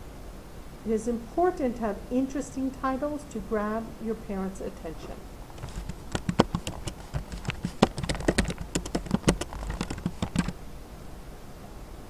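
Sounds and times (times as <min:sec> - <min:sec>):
keyboard typing: 0:05.0 - 0:10.6.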